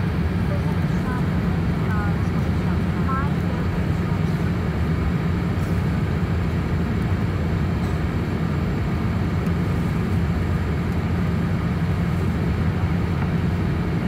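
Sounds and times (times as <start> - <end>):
airplane cabin engine rumble: 0.0 - 14.0.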